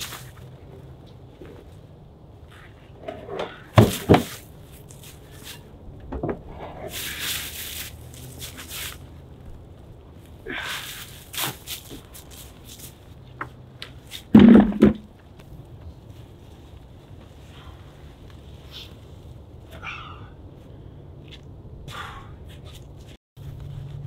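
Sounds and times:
log thumping on woodpile: 3.4 - 4.4, 14.3 - 15.1
footsteps crunching on snow: 9.8 - 13.4
heavy wooden knocks: 14.4 - 15.1.

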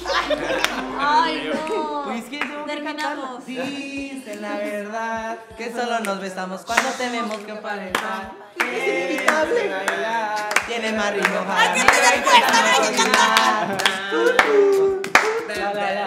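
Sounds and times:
group singing along: 0.0 - 16.0
hands clapping: 0.5 - 0.9, 2.3 - 2.6, 6.0 - 15.7.

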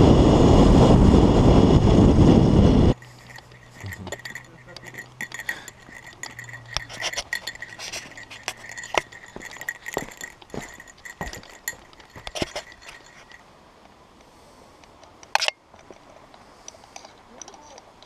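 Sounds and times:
light metallic clinking: 2.9 - 13.5, 15.0 - 18.0
footsteps on stone steps: 3.1 - 13.4.

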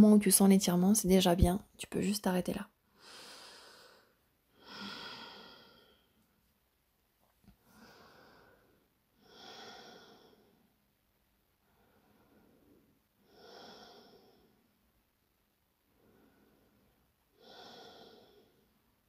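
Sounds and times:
woman breathing softly: 2.9 - 6.2, 7.6 - 10.8, 11.6 - 14.8, 15.9 - 18.8.

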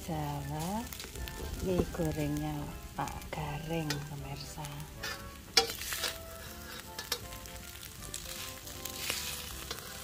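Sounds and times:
noodles sizzling in a wok: 0.0 - 10.0
metal spatula scraping a wok: 4.8 - 10.0.

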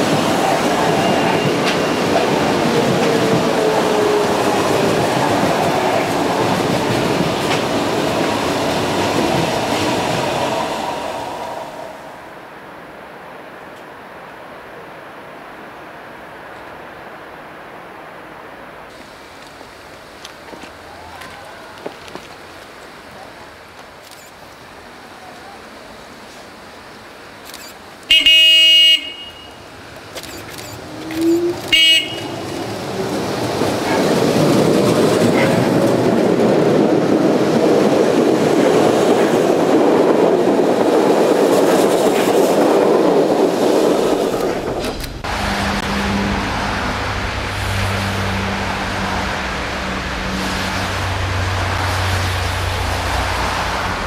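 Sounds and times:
train rising whine: 0.0 - 12.6, 29.5 - 54.0
train horn: 28.1 - 29.6, 31.3 - 32.6, 35.3 - 35.7
vehicle rumble: 29.4 - 37.9, 41.8 - 54.0.

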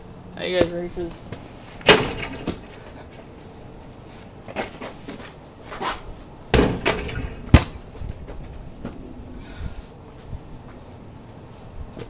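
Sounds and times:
ball hitting backboard and rim: 6.5 - 8.0
basketball bouncing thuds: 6.5 - 8.5.

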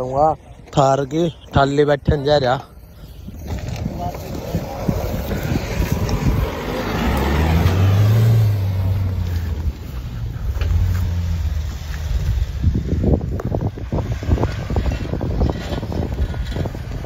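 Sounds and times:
wind buffeting microphone: 0.0 - 17.0
suv engine revving: 4.3 - 17.0.

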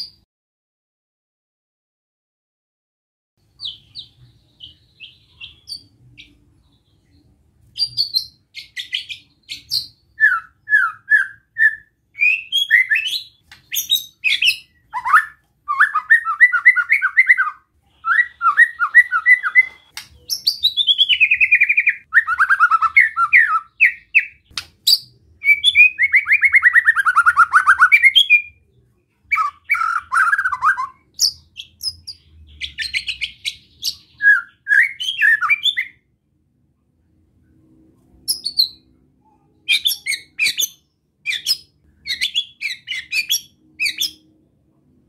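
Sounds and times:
bird singing whistled trills: 7.8 - 28.6, 29.3 - 36.0, 39.7 - 44.2.

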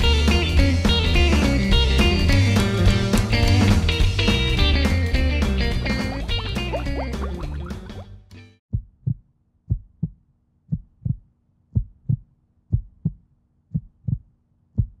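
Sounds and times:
music: 0.0 - 8.6
heartbeat thumps: 5.8 - 8.0, 8.7 - 15.0.

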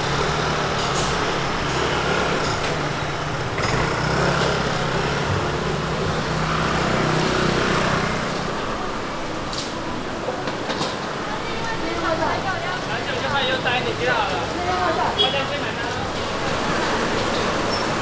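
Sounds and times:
engine running: 0.0 - 18.0
street noise: 0.0 - 18.0.

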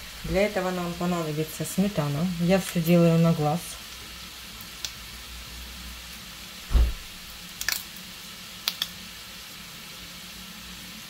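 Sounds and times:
meat sizzling in a pan: 0.0 - 11.0
dull thump: 6.7 - 7.2.

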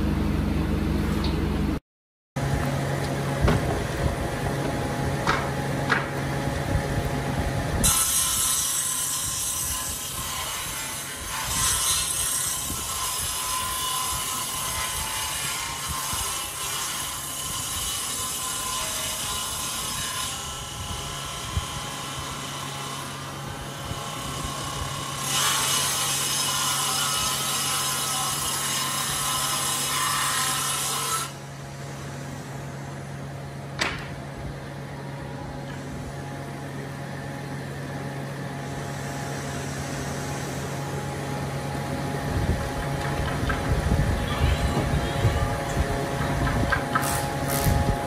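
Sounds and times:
table saw motor hum: 35.4 - 48.0
saw blade ripping through wood: 46.9 - 47.9.

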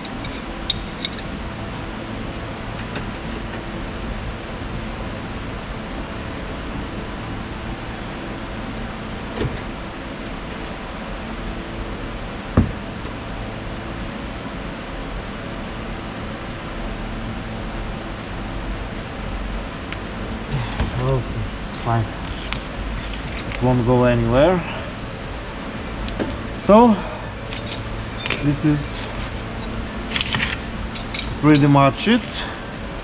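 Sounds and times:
spanner clinking on nuts: 0.0 - 1.4, 27.4 - 32.4
machine hum: 0.0 - 33.0.

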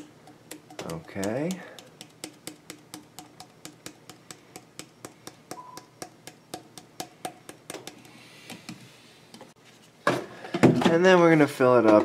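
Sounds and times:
liquid dripping into water: 0.0 - 8.1.

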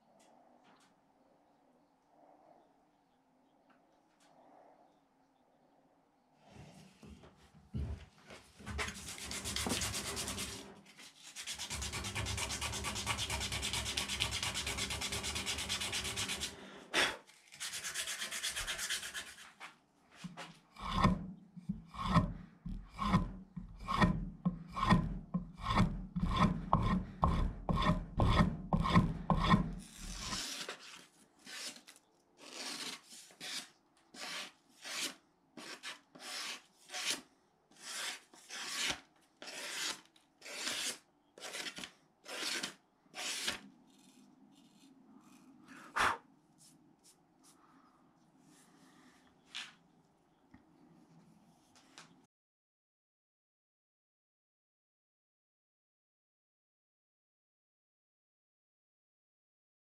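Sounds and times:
knife slicing paper: 29.9 - 37.2, 37.8 - 44.8.

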